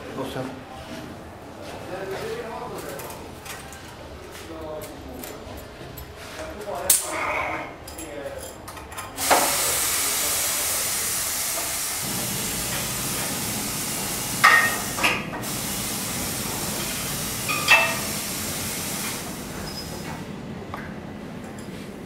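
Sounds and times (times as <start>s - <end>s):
compressed air hissing: 9.2s - 20.2s.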